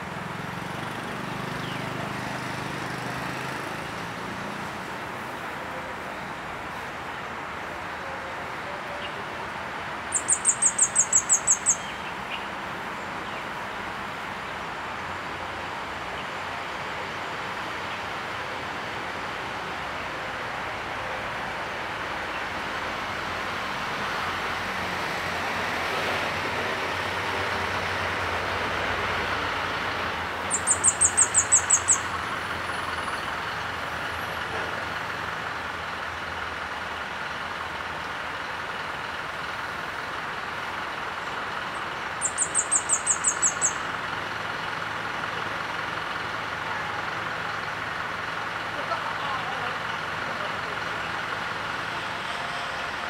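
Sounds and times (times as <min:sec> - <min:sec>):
high-pitched bird calls: 0:10.1 - 0:13.5, 0:30.4 - 0:33.7, 0:41.7 - 0:44.0.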